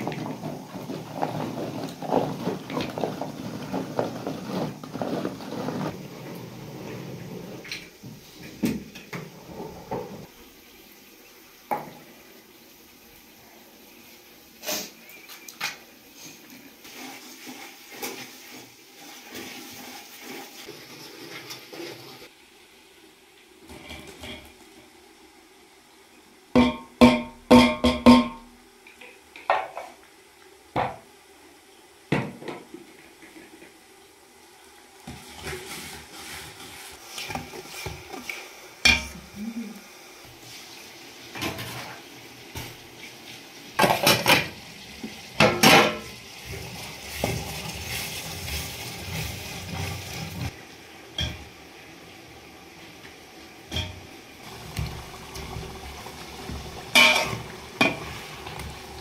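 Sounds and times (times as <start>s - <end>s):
metal pots and dishes clanking: 38.8s - 39.2s, 45.4s - 46.1s, 51.2s - 51.4s, 53.7s - 54.1s, 56.9s - 58.2s.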